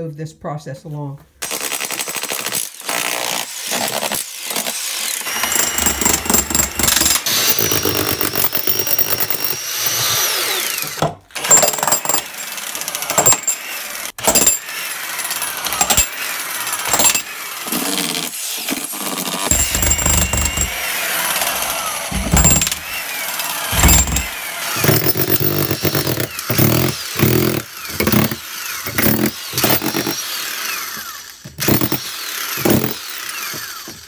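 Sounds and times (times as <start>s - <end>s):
demolition hammer chiselling brick: 1.4s - 14.7s, 15.3s - 16.2s, 16.8s - 34.0s.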